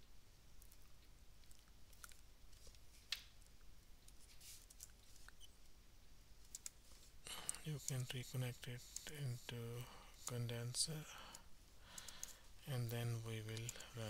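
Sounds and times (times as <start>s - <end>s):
computer mouse clicks: 6.4s - 6.8s, 11.3s - 14.0s.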